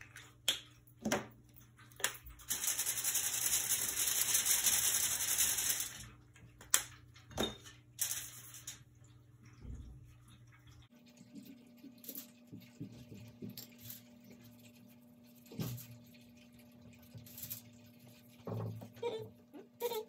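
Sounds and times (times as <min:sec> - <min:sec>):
low steady hum: 0:06.0 - 0:20.0.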